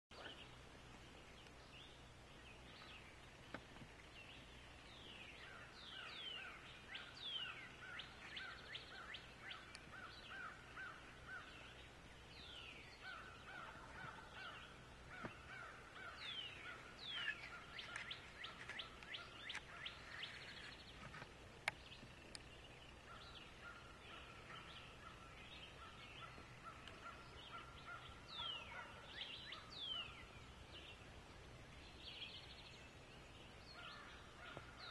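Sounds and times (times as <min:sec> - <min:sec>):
faint turkey gobbling: 0:33.8 - 0:34.9.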